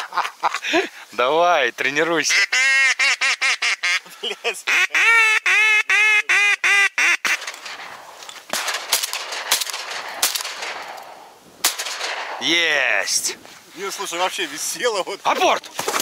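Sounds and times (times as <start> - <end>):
duck call quacking: 2.2 - 7.4
sharp clicks: 7.4 - 12.4.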